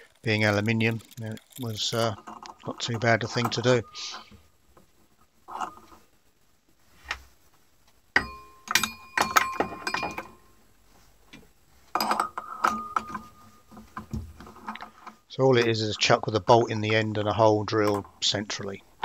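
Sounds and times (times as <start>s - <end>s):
metallic clicks and clinks: 0.0s - 4.2s.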